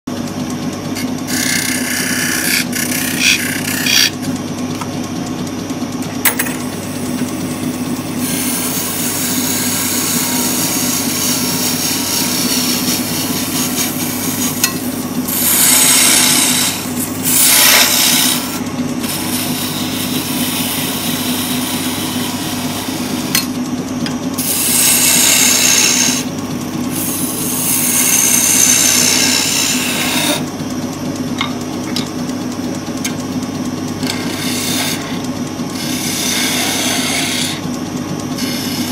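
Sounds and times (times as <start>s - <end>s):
turning tool scraping wood: 0.1s - 5.0s, 6.7s - 30.6s, 33.8s - 38.9s
wood lathe humming: 0.1s - 38.9s.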